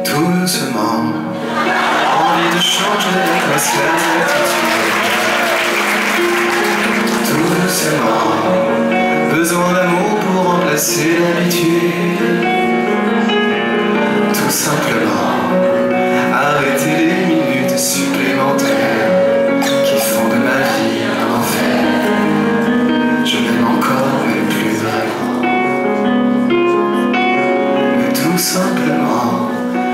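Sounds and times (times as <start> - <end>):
man singing into a microphone: 0.0 - 1.4, 2.0 - 4.9, 7.0 - 25.8, 27.8 - 29.9
piano: 0.0 - 29.9
audience singing along: 1.4 - 9.3, 14.3 - 25.3.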